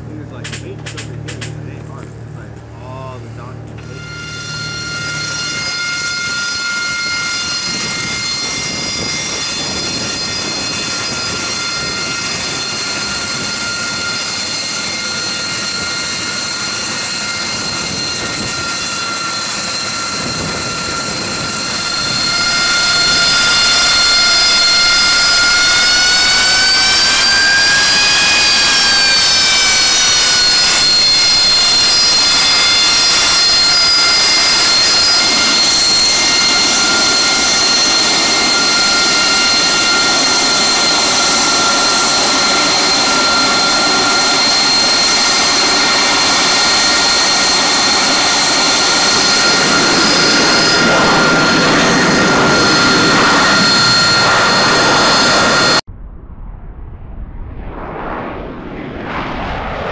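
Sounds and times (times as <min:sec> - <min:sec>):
jet engine whining: 0:00.0 - 0:55.9, 0:57.4 - 0:59.9.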